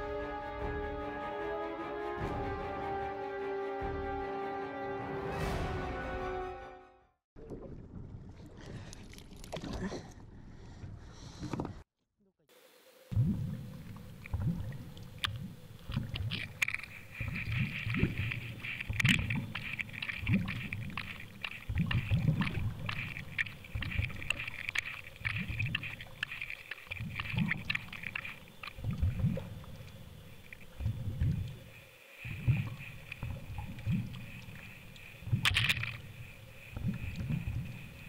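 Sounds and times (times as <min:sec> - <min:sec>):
muffled underwater sloshing: 0:13.1 - 0:38.0.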